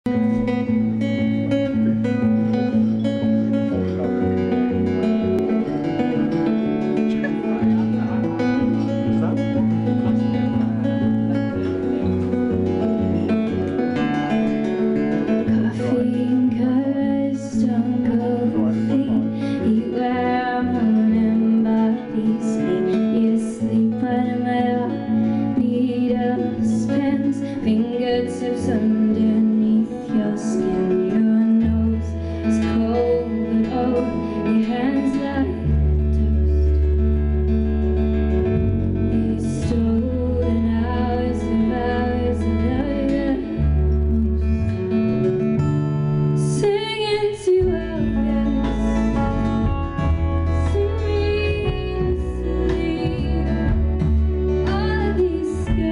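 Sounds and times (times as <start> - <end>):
deep bass line: 0.0 - 21.8, 35.4 - 46.6, 47.6 - 55.9
live band playing: 0.1 - 55.9
woman singing: 13.4 - 36.9, 38.6 - 44.8, 46.4 - 55.9.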